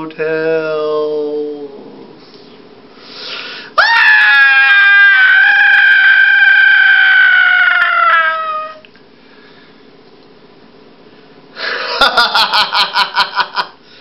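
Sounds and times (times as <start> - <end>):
person wailing eerily: 3.8 - 8.8.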